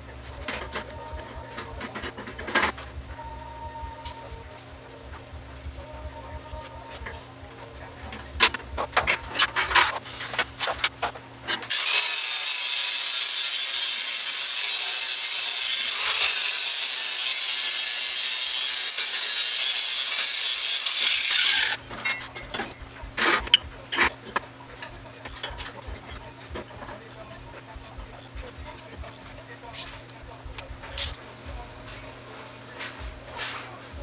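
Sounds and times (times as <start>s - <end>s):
hand tool rasping on steel tube: 11.7s - 31.2s
metal tubes clinking: 21.6s - 31.2s.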